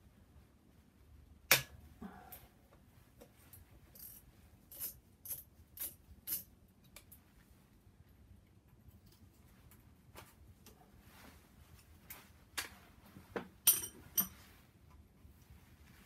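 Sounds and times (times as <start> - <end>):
tools and parts clicking: 3.9 - 7.2, 13.6 - 14.4.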